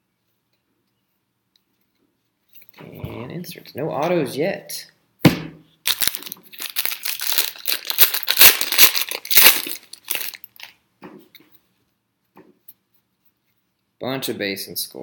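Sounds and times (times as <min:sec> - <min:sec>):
thump: 0:05.2 - 0:05.7
foil wrapper crinkling: 0:05.8 - 0:10.8.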